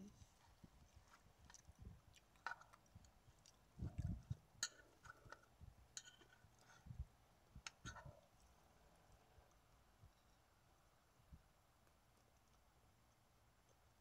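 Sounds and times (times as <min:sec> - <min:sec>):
close-up chewing: 0:00.2 - 0:07.0.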